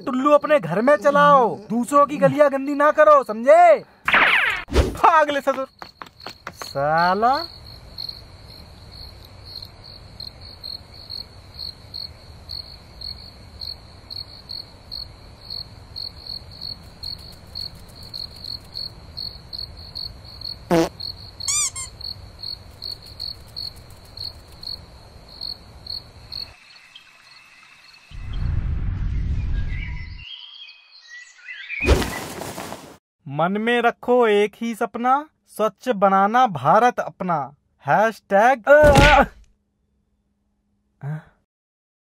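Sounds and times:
cricket chirping: 0.0 - 4.0, 5.0 - 32.2.

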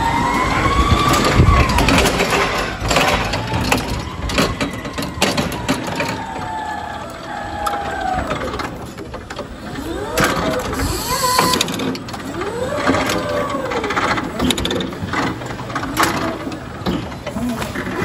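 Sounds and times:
forklift motor whine: 0.0 - 16.4
forklift mast clunks and rattles: 8.5 - 18.0.

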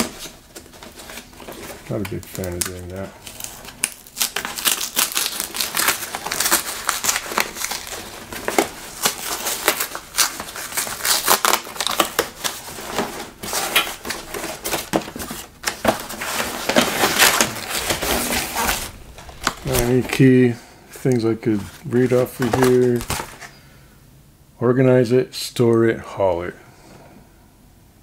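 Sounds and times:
paper label tearing and crumpling: 0.0 - 20.4, 21.6 - 23.4.

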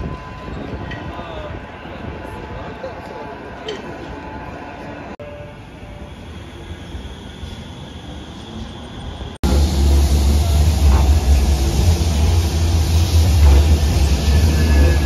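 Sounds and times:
tram running noise: 0.0 - 15.0
tram passing with deep rumble: 1.4 - 15.0
faint high whine: 5.2 - 15.0.

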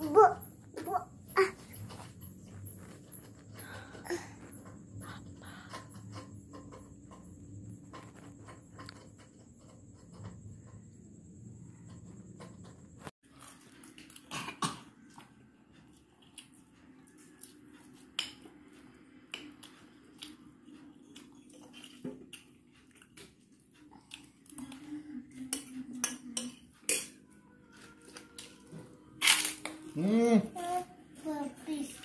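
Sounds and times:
spoons clinking against bowls: 25.5 - 27.3.

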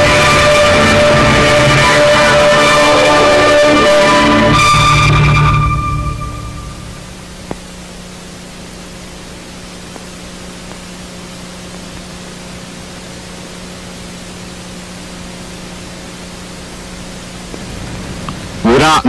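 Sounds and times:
low even hum: 0.0 - 19.0
steady hiss: 6.4 - 19.0.

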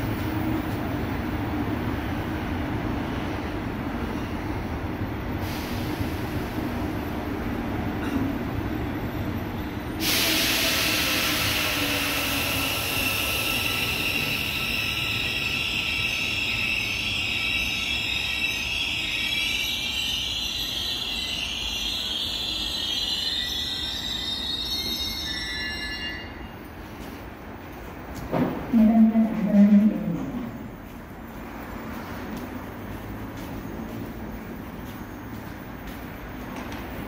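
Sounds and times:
rail noise hiss: 2.9 - 7.7, 9.8 - 25.4.

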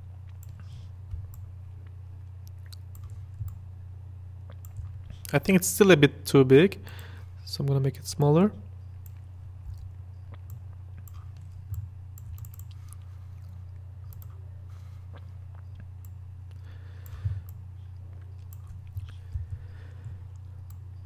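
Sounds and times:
steady low hum: 0.0 - 21.0
mouse and keyboard clicks: 10.5 - 13.0.

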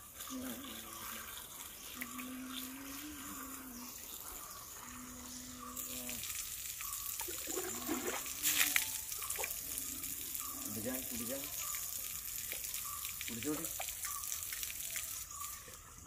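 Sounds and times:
running water: 0.0 - 16.0
water splashes: 5.7 - 15.8.

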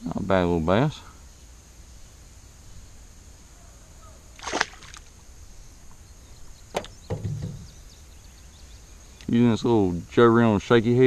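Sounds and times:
fish splashing into water: 4.4 - 5.1
short low knock: 6.8 - 7.7.

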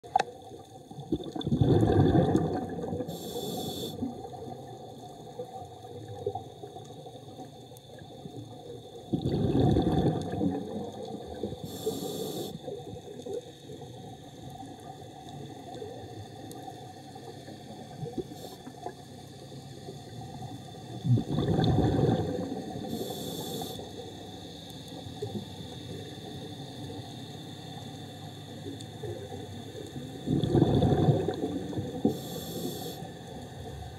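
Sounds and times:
exhaled bubbles gushing underwater: 0.0 - 12.0, 19.8 - 24.4, 28.7 - 32.3
regulator hiss: 3.0 - 4.1, 11.6 - 12.8, 22.8 - 28.7, 32.0 - 33.4.

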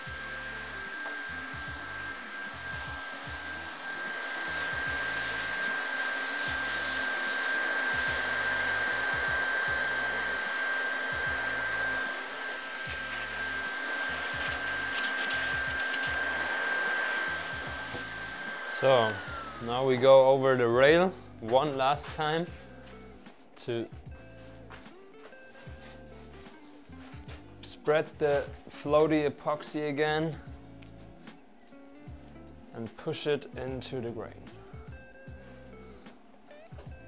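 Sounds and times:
heat gun blowing: 0.0 - 20.4.

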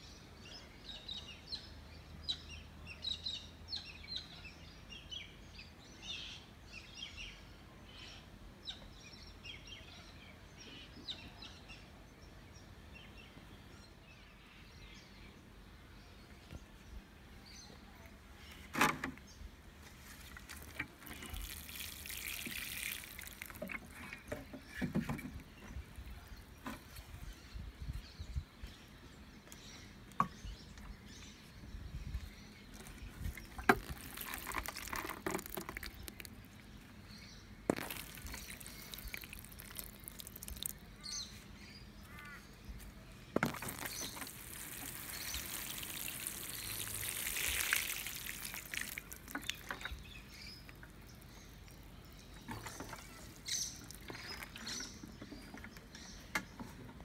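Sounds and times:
watering can sprinkling water: 20.2 - 24.4, 33.2 - 36.4, 37.7 - 40.8, 43.4 - 51.4, 52.5 - 55.0.

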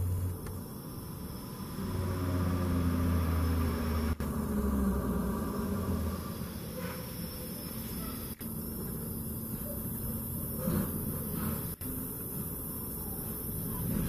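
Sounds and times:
vehicle engine humming: 1.5 - 6.9.

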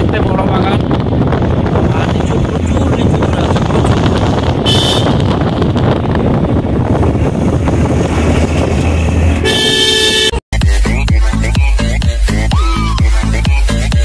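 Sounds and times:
wind and road noise: 0.0 - 14.0
car horn: 4.6 - 5.5, 9.4 - 10.4.

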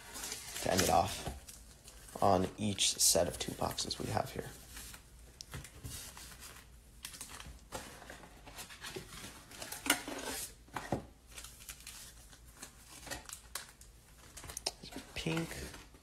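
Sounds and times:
shiny wrappers rustling and crinkling: 0.0 - 5.0, 11.3 - 16.0.

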